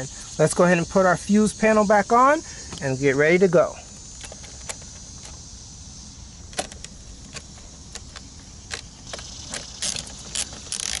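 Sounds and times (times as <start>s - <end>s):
rapid ratchet clicking: 6.6s - 11.0s.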